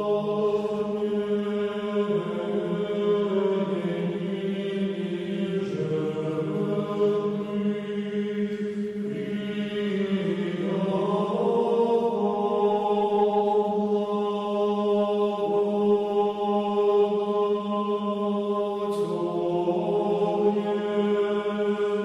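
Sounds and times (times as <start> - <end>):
church chant singing: 0.0 - 22.0.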